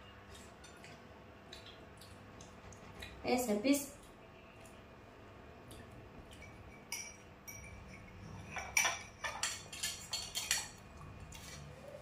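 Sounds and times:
cutlery clinking on a plate: 6.3s - 11.7s.

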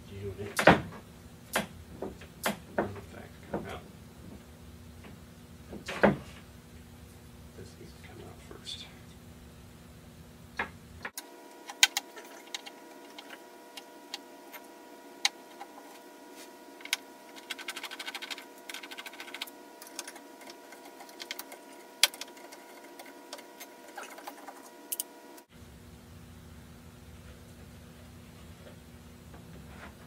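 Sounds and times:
electrical hum: 0.0s - 30.0s
fast ticks: 16.9s - 25.1s.

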